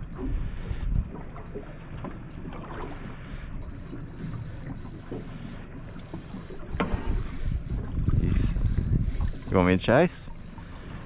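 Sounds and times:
wind rumbling on microphone: 0.0s - 1.4s, 6.3s - 11.0s
water lapping against boat hull: 0.0s - 11.0s.

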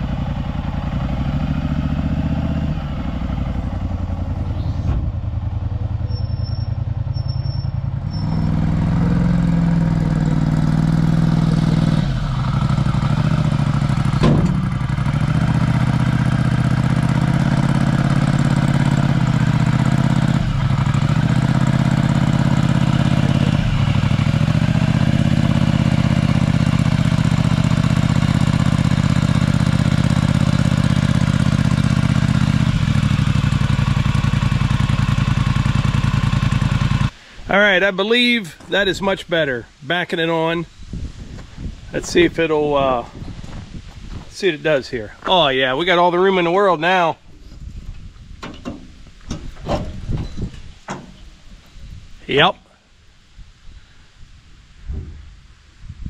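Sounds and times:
small engine revving: 0.0s - 5.1s, 6.1s - 37.1s.

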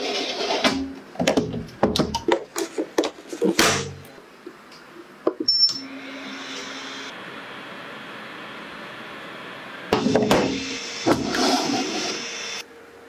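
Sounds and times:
oven humming and hissing: 4.9s - 13.0s
oven beep: 5.5s - 6.0s.

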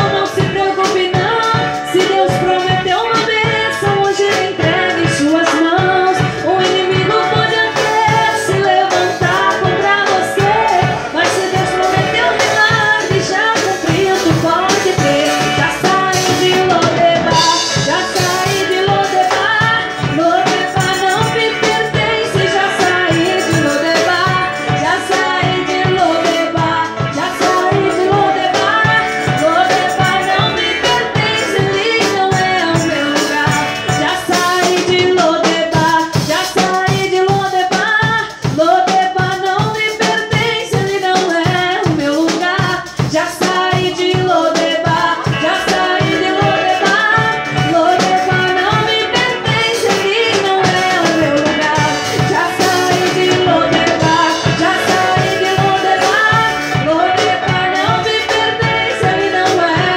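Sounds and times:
acoustic guitar: 0.0s - 59.9s
drum kit steady beat: 0.0s - 59.9s
women singing into microphones: 0.0s - 59.9s.

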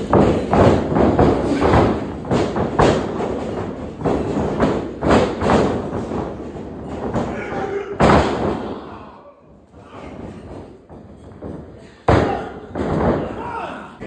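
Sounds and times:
heavy thumps and knocks: 0.0s - 8.8s, 9.8s - 13.6s.

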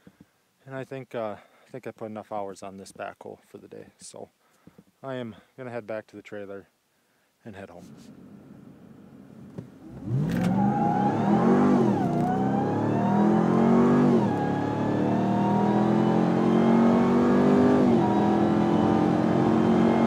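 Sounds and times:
engine revving at full throttle: 9.8s - 20.0s
tires squealing on wet road: 10.1s - 12.6s.

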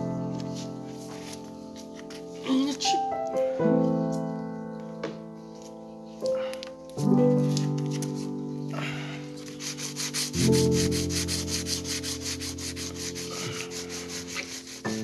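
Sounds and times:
piano chords music: 0.0s - 15.0s
sanding block rasping: 9.4s - 15.0s.

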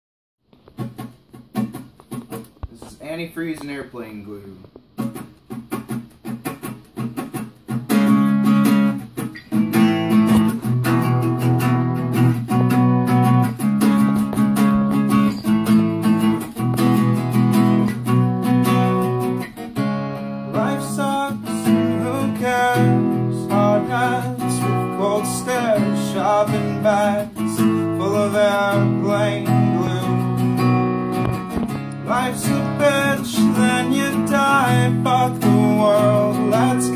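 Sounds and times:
acoustic guitar strummed: 0.5s - 36.9s
man singing: 20.5s - 30.8s, 32.0s - 36.9s.

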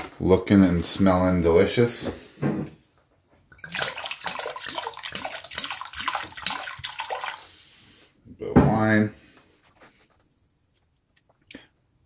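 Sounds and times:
wine pouring into metal pot: 3.6s - 7.6s.

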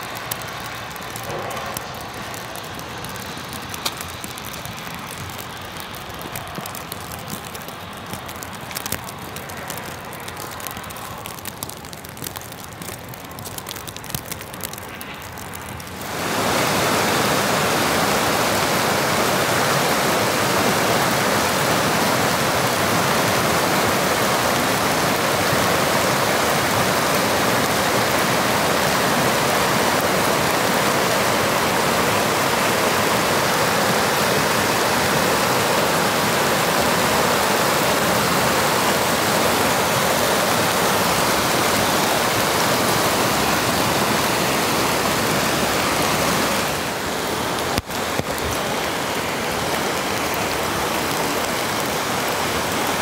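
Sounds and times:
river rushing over rocks: 15.9s - 53.0s.

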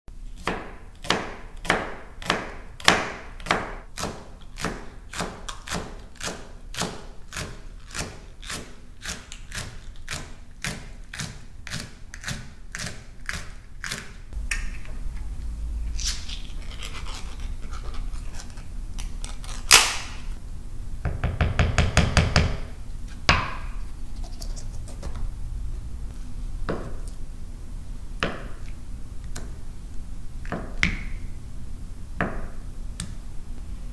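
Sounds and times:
knife chopping on cutting board: 0.4s - 14.1s.

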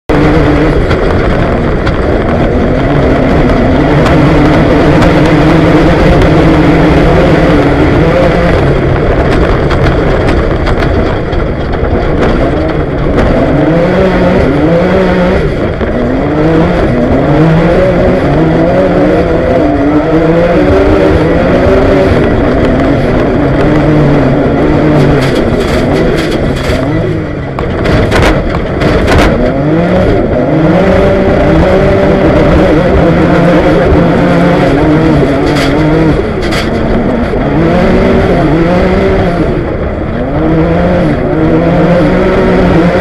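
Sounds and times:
buggy engine revving through gears: 0.1s - 43.0s
sharp knocks and rattles: 8.6s - 14.6s, 20.7s - 30.3s, 31.2s - 39.4s.

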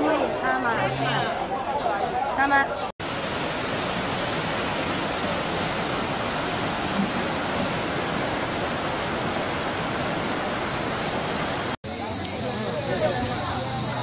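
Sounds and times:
water rushing over rocks: 3.0s - 14.0s.

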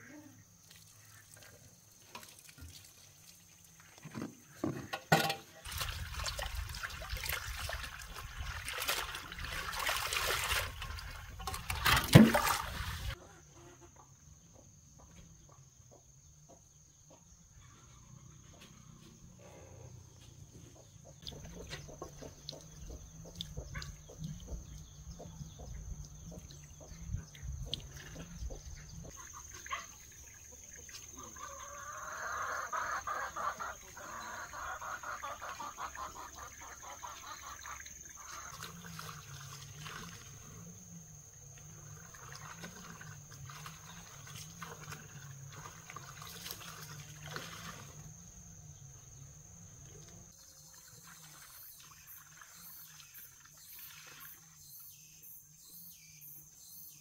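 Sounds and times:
water pouring and splashing: 0.6s - 13.2s, 34.9s - 40.8s, 41.4s - 48.2s, 50.3s - 54.6s.

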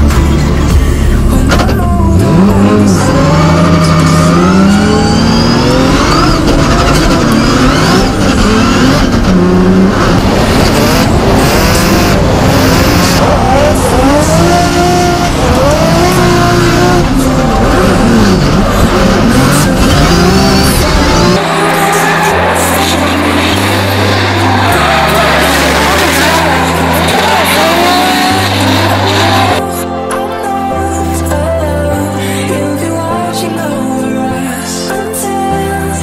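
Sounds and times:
car engine revving: 0.0s - 29.7s.

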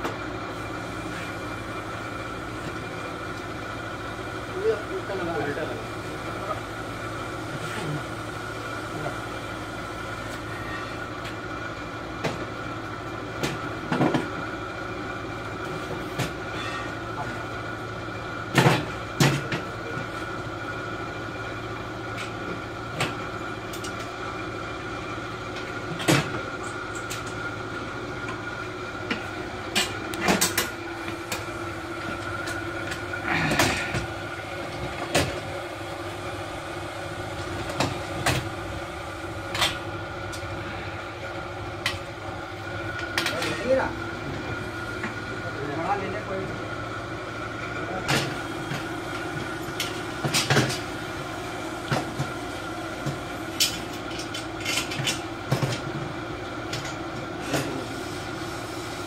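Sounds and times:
steady hum: 18.6s - 59.0s.

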